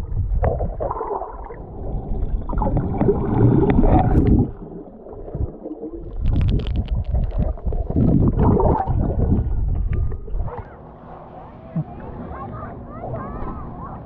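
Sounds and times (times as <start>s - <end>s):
water gurgling underwater: 0.0s - 12.2s
sharp crackling clicks: 6.1s - 7.8s.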